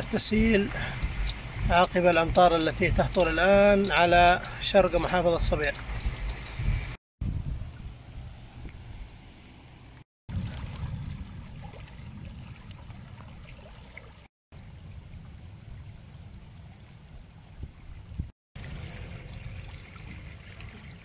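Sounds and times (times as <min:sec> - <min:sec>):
water rushing over rocks: 0:00.0 - 0:06.4.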